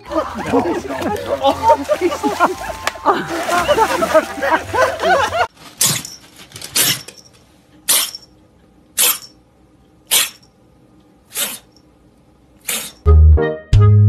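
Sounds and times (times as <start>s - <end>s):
kitten sneezing: 11.3s - 11.7s.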